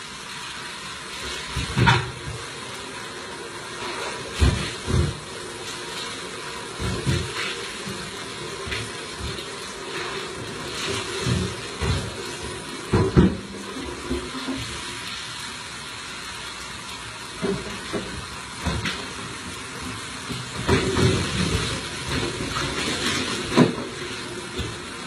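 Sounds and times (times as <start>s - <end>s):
steady hiss: 0.0s - 25.0s
items knocking in kitchen cabinets: 1.5s - 2.5s, 4.3s - 5.3s, 6.8s - 9.7s, 10.4s - 14.8s, 17.4s - 24.8s.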